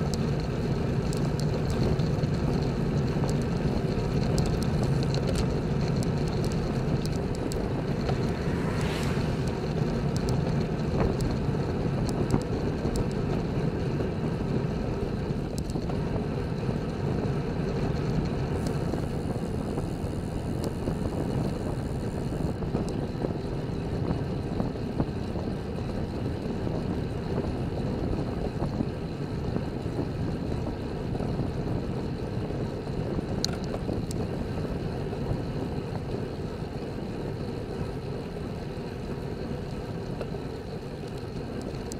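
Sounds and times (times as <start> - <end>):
faint ticks: 0.0 - 11.4, 12.0 - 13.5, 15.1 - 16.0, 17.7 - 23.0, 33.3 - 34.3, 39.6 - 41.9
tyre and road noise: 0.0 - 41.9
wind rush on microphone: 0.0 - 41.9.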